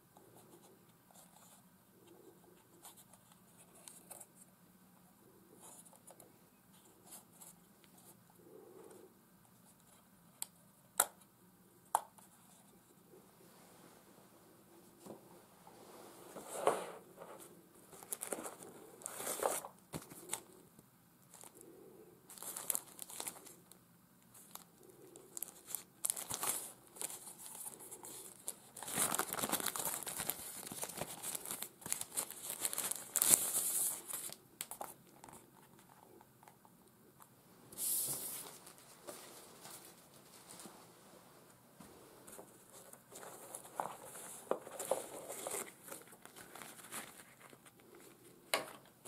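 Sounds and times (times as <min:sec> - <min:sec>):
packaging crinkling: 0:17.9 - 0:20.5, 0:22.3 - 0:23.6, 0:24.3 - 0:35.9, 0:43.1 - 0:47.8.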